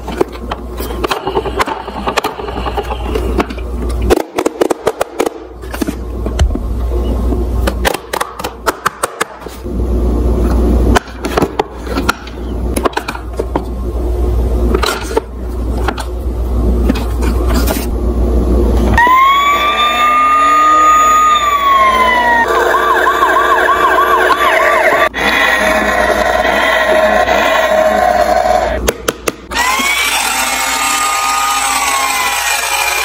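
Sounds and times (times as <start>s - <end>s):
electronic toy siren wailing: 19.0s - 28.8s.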